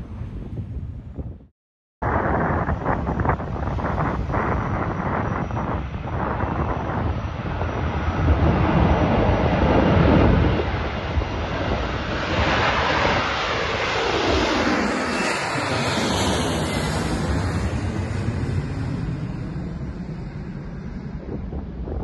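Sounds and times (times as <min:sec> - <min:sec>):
jet airliner taking off: 0:02.0 - 0:22.0.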